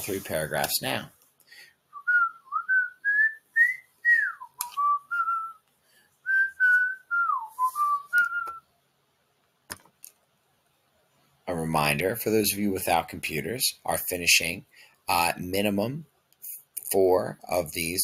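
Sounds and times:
person whistling a tune: 1.9s - 5.6s, 6.2s - 8.6s.

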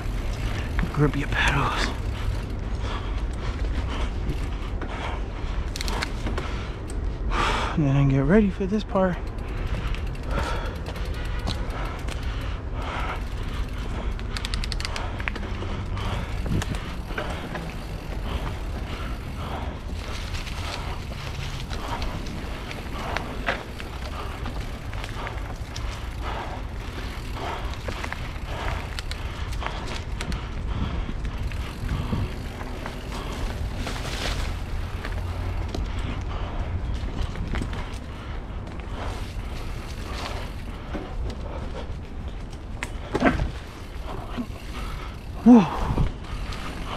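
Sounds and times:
rapid ticks: 0.0s - 7.1s, 8.4s - 46.9s
bike rattling and clicking: 0.0s - 46.9s
wind rumble on microphone: 9.2s - 46.9s
wind on microphone: 30.0s - 33.5s.

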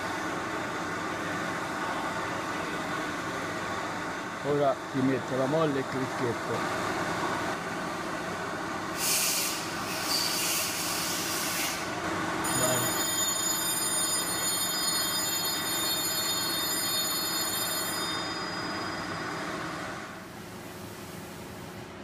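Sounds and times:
hiss: 9.0s - 11.9s.

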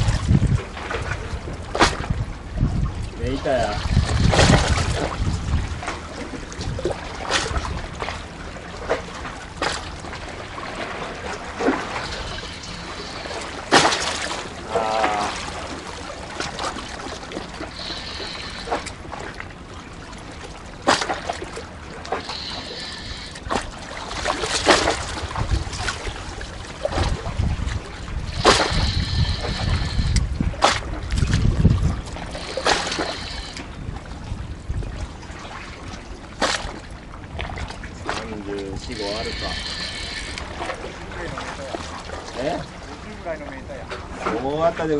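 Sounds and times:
wind buffeting microphone: 0.0s - 9.6s, 21.5s - 44.9s
sharp water splashes: 0.0s - 34.4s, 35.2s - 43.4s
sea water lapping: 0.0s - 44.9s.

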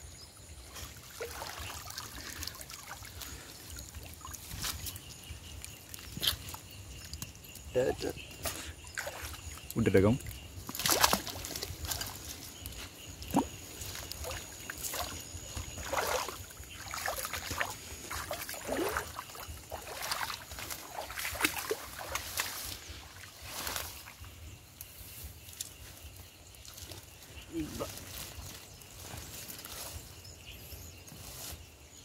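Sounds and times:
net and leaves rustling: 0.4s - 32.0s
water splashing and dripping: 0.6s - 24.2s.

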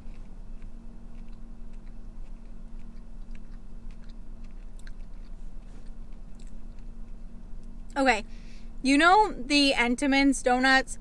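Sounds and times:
person chewing with mouth closed: 0.0s - 7.9s
steady low hum: 0.0s - 11.0s.

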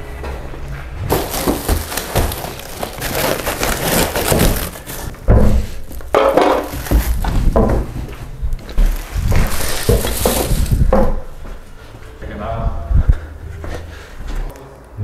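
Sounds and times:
plastic wrap crinkling: 1.1s - 11.3s
heavy thumps: 3.6s - 11.6s.

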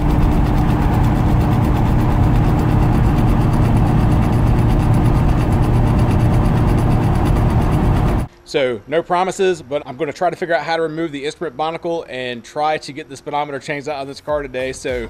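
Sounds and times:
car cabin drone: 0.0s - 8.3s
speedometer cable rattling: 0.0s - 8.3s
steady whine: 0.0s - 13.9s.

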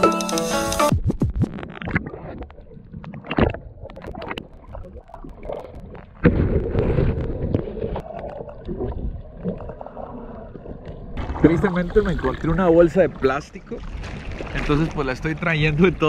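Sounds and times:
muffled water sloshing and gurgling: 1.0s - 16.0s.

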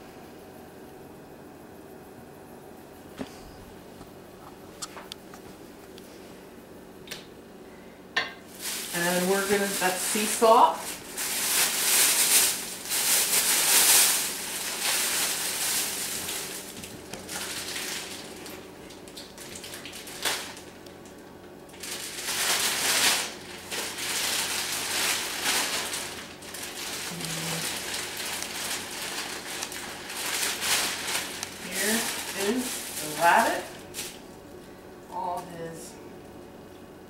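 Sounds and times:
plastic bags rustling: 8.4s - 35.3s.

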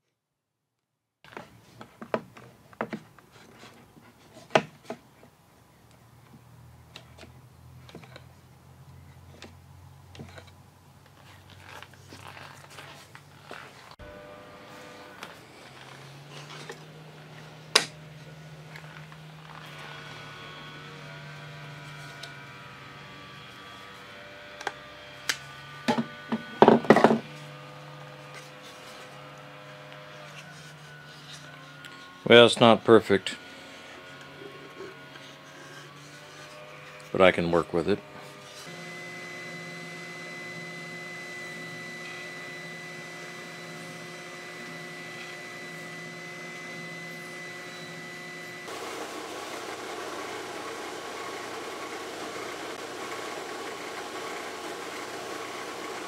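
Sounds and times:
clatter of wood and plastic: 25.9s - 27.3s.

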